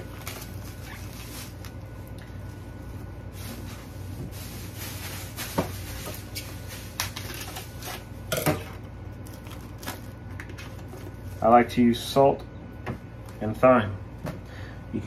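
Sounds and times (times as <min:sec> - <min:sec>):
cling wrap rustling and crinkling: 0:00.0 - 0:08.2, 0:09.1 - 0:11.6
steady low hum: 0:00.0 - 0:15.0.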